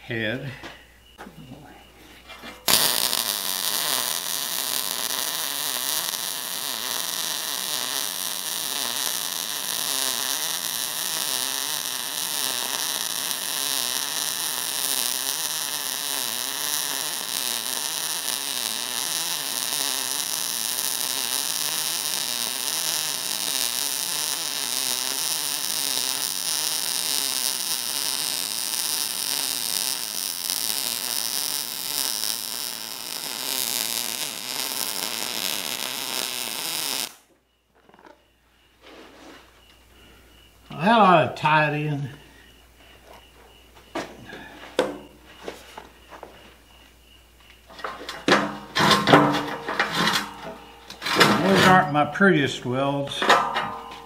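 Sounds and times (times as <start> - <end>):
welding arc crackling hiss: 2.6 - 37.3, 47.6 - 54.0.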